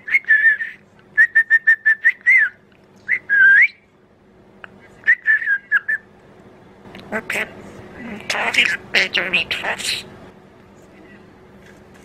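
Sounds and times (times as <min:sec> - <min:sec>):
budgerigar chirping: 0:08.3 - 0:10.0.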